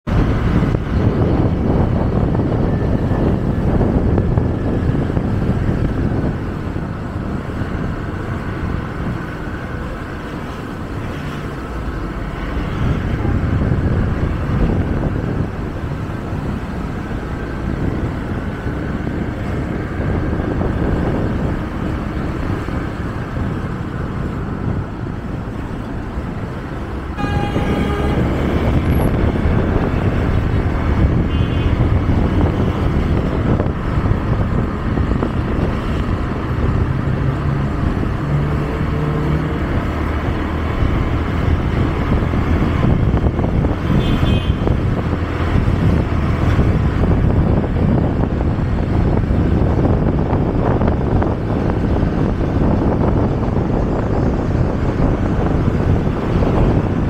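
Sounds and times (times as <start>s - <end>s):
vehicle rumble and road noise: 0.0s - 57.0s
car horn: 27.1s - 30.2s, 31.1s - 31.9s, 43.8s - 44.8s.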